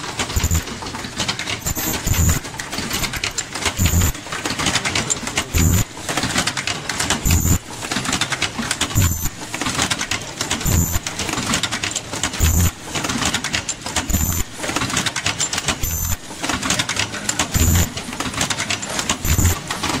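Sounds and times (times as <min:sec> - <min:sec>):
machine buzz and whine: 0:00.0 - 0:00.7, 0:01.6 - 0:04.2, 0:05.4 - 0:06.0, 0:07.2 - 0:07.7, 0:08.9 - 0:09.4, 0:10.6 - 0:11.2, 0:12.4 - 0:12.8, 0:14.1 - 0:14.5, 0:15.8 - 0:16.2, 0:17.5 - 0:18.0, 0:19.2 - 0:19.7
machine mechanism clattering: 0:00.0 - 0:20.0.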